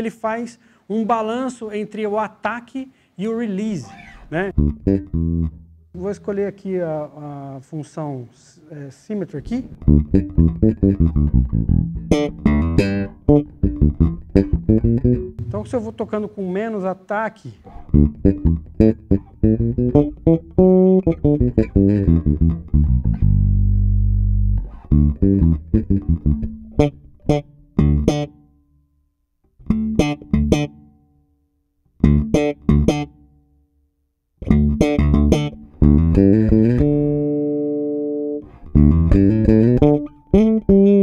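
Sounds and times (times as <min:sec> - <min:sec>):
electric bass guitar plucked notes: 0:03.9 - 0:06.1, 0:09.6 - 0:15.9, 0:17.7 - 0:28.4, 0:29.5 - 0:30.9, 0:32.0 - 0:33.3, 0:34.4 - 0:41.0.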